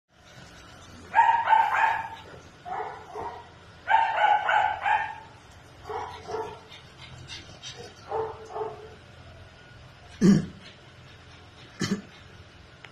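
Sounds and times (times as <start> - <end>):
small dog barking: 1.1 - 6.7, 8.0 - 9.0.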